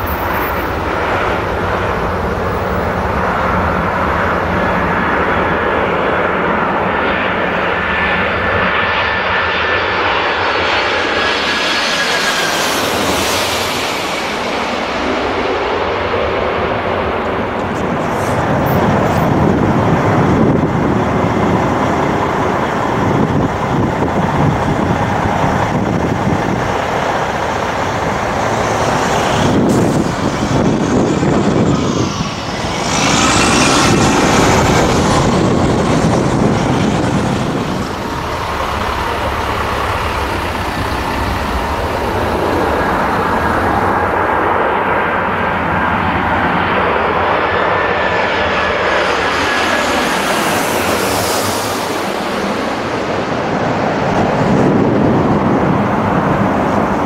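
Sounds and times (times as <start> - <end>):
airliner landing jet engines: 0.0 - 57.0
airliner taking off: 0.0 - 57.0.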